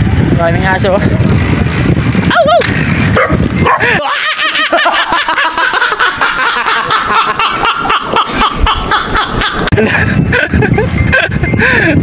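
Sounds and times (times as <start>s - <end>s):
men laughing: 3.6s - 12.0s.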